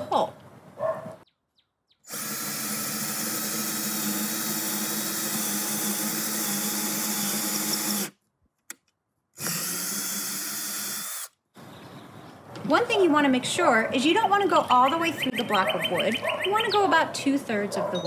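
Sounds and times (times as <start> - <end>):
cordless drill boring into wood: 2.1 - 8.2, 9.4 - 11.4.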